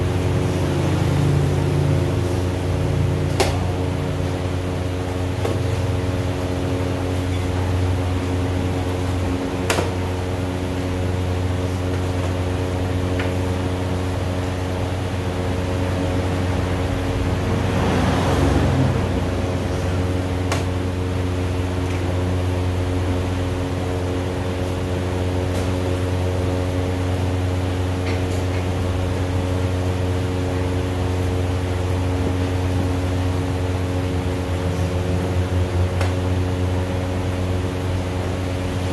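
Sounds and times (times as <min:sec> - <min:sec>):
steady machine hum: 0:00.0 - 0:38.9.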